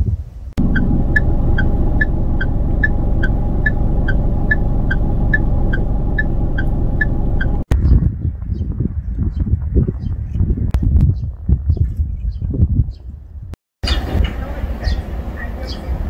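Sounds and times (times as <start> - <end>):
vehicle engine low rumble: 0.5 - 10.8.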